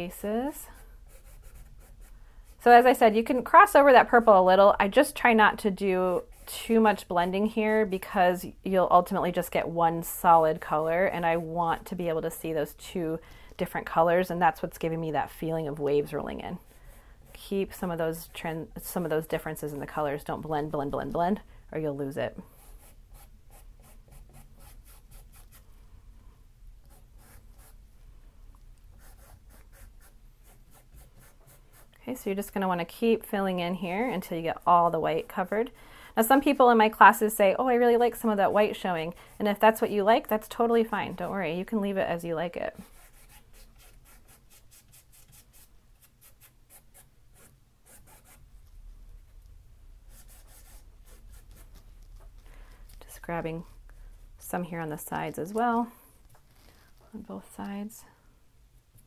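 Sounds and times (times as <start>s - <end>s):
paintbrush strokes on canvas: 29.0s - 31.9s.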